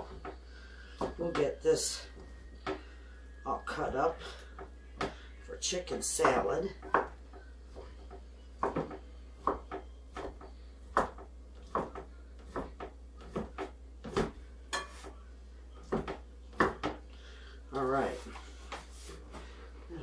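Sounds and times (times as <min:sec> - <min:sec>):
knife chopping on cutting board: 0:06.2 - 0:15.1, 0:15.8 - 0:17.0.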